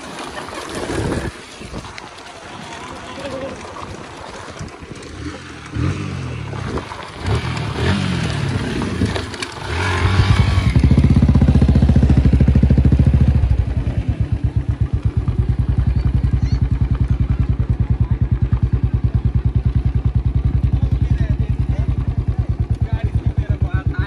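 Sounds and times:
motorcycle engines revving: 0:04.8 - 0:24.0.

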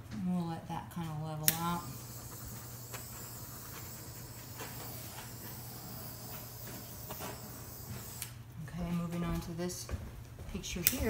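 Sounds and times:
torch flame hissing: 0:01.4 - 0:08.6.

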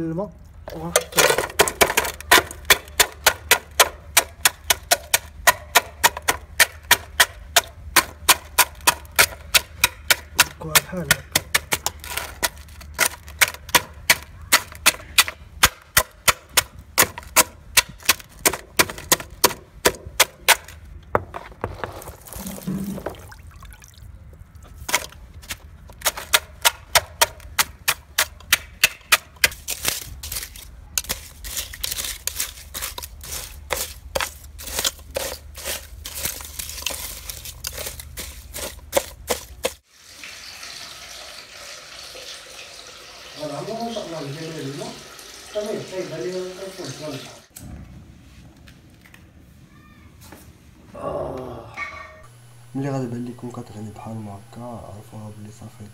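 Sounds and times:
stone pounding shells in metal pot: 0:00.9 - 0:20.8, 0:24.9 - 0:39.8.

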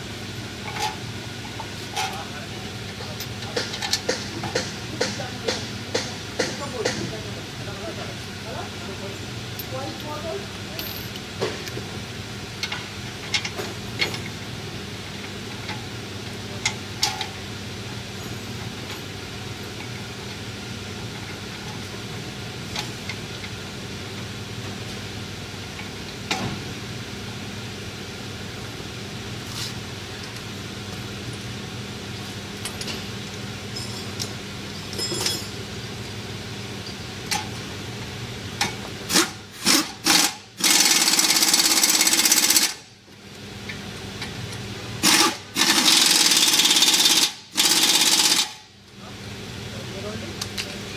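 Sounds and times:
metallic clinks of tools: 0:33.8 - 0:35.6.

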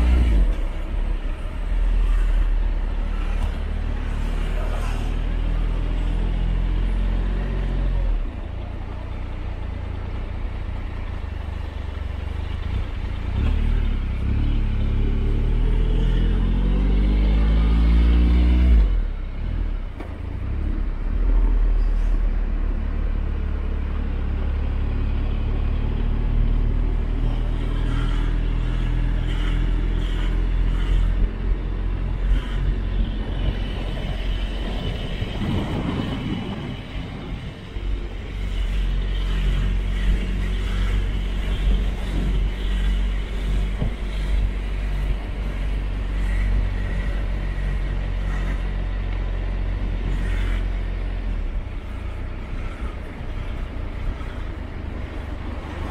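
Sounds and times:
low rumble: 0:18.8 - 0:55.9.

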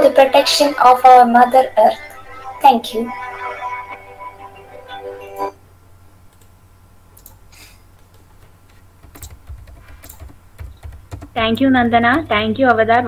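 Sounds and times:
background music: 0:00.0 - 0:05.6
scattered clicks: 0:06.3 - 0:06.6, 0:07.2 - 0:07.4, 0:08.0 - 0:12.3
light typing on keyboard: 0:07.2 - 0:07.4, 0:08.0 - 0:12.4.

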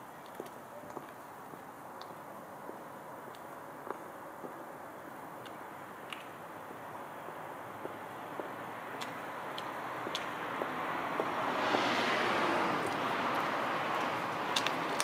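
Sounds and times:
high heels clicking on asphalt: 0:00.2 - 0:04.6, 0:07.2 - 0:15.0
passing vehicle: 0:07.6 - 0:15.0.

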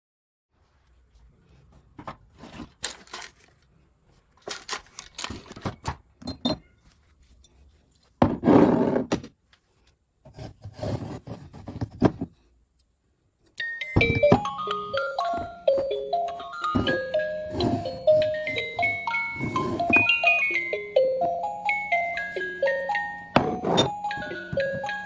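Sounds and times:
tinkling electronic chime tune: 0:13.6 - 0:25.0.

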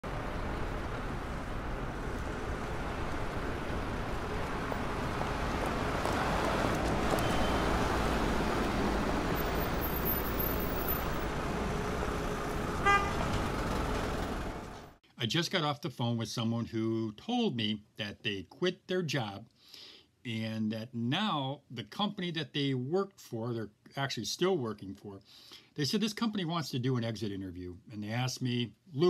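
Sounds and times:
road traffic noise: 0:00.0 - 0:15.0
car horn toot: 0:07.1 - 0:07.7, 0:12.8 - 0:13.3.

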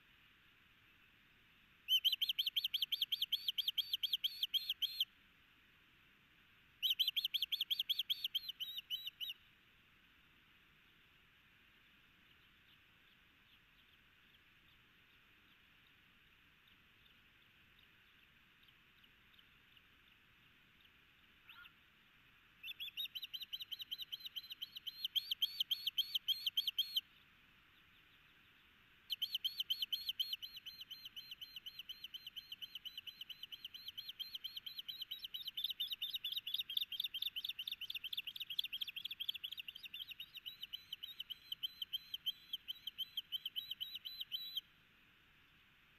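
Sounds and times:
osprey high chirping calls: 0:01.9 - 0:05.1, 0:06.8 - 0:09.4, 0:22.6 - 0:27.0, 0:29.1 - 0:44.6.

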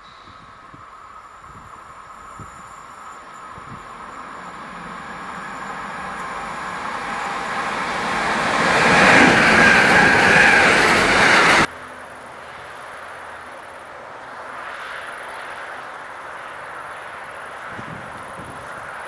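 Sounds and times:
freight train wheels rumbling: 0:00.0 - 0:11.7
train wheels squealing: 0:00.0 - 0:11.7.

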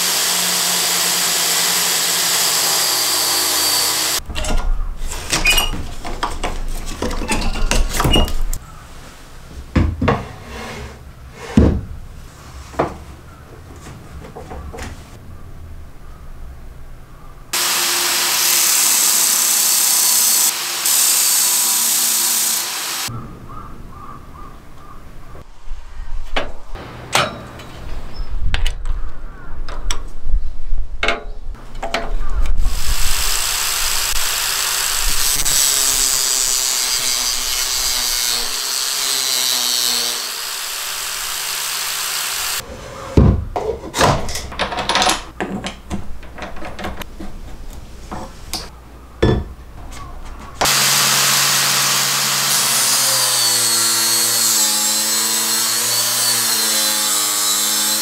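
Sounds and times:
angle grinder sanding steel: 0:00.0 - 0:04.2, 0:17.6 - 0:23.1, 0:32.7 - 0:42.6, 0:50.6 - 0:58.0
knocks and clatter of handling: 0:05.3 - 0:08.6, 0:43.2 - 0:50.6.

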